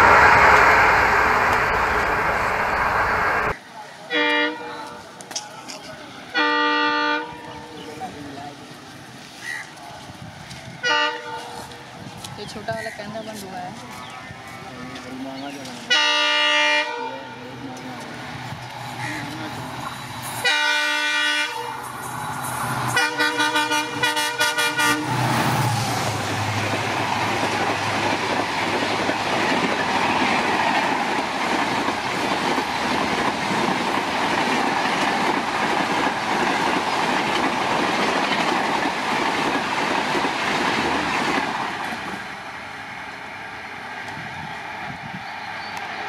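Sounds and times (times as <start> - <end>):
locomotive engine rumble: 0.0 - 3.6
train coaches rushing over track: 0.0 - 46.0
train horn blasts: 4.1 - 5.0, 6.4 - 7.5, 10.8 - 11.7, 15.9 - 17.4, 20.4 - 21.8, 22.9 - 25.2.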